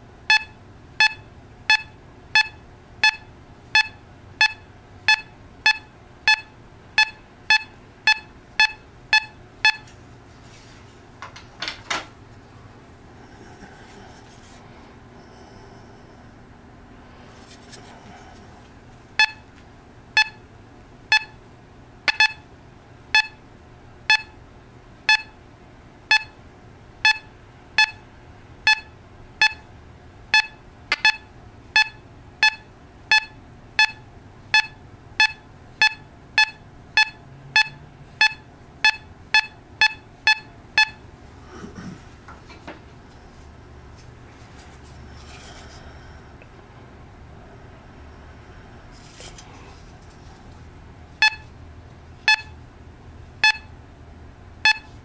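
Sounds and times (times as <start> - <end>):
metal detector beeps: 0.3 - 9.9, 19.2 - 19.4, 20.2 - 20.4, 21.1 - 21.4, 22.1 - 22.4, 23.2 - 23.4, 24.1 - 24.4, 25.1 - 25.4, 26.1 - 26.4, 27.1 - 28.0, 28.7 - 29.6, 30.4 - 34.0, 34.6 - 41.0, 51.2 - 51.5, 52.3 - 52.5, 53.4 - 53.7, 54.7 - 54.9.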